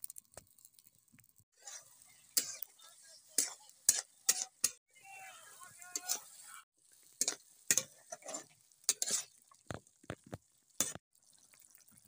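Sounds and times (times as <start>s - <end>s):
curry sizzling: 0.0s - 12.0s
spatula scraping metal pan: 1.6s - 4.8s, 5.9s - 6.4s, 7.2s - 9.5s, 10.8s - 11.0s.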